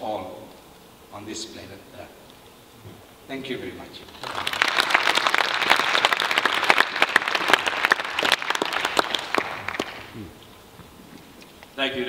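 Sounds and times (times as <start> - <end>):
audience applauding: 4.1 - 10.2.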